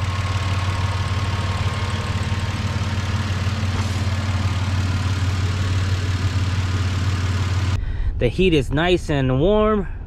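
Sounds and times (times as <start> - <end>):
car engine idling: 0.0 - 7.8.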